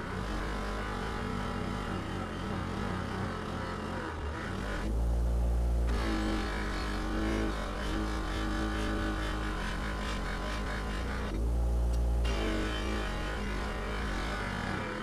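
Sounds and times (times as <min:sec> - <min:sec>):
bench grinder buffing metal: 0:05.9 - 0:11.4, 0:12.2 - 0:15.0.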